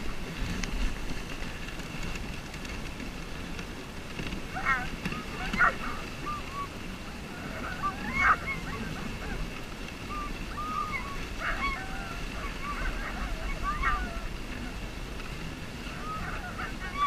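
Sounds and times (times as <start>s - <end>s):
sled runners rumbling on snow: 0.0s - 17.0s
wind: 0.0s - 17.0s
dogs yelping and whining: 4.5s - 14.8s, 15.8s - 17.0s.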